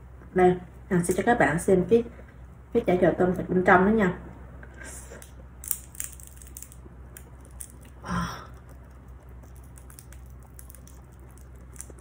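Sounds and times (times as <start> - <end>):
low steady hum: 0.0 - 12.0
crispy wrapper crackling: 5.6 - 12.0.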